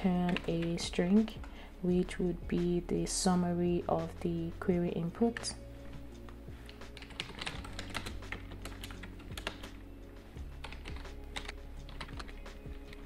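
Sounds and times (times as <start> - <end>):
computer keyboard typing: 0.0 - 1.4, 6.6 - 9.8, 10.6 - 13.0.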